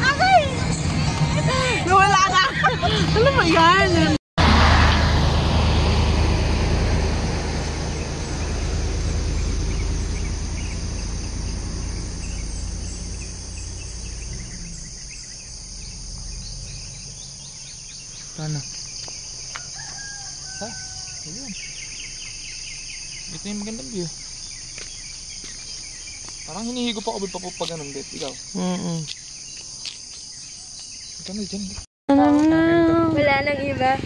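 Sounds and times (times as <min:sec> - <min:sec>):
low rumble: 0:00.0 - 0:19.4
insects chirring: 0:06.6 - 0:31.9
rapid ticking chirps: 0:07.8 - 0:19.8, 0:21.2 - 0:31.8.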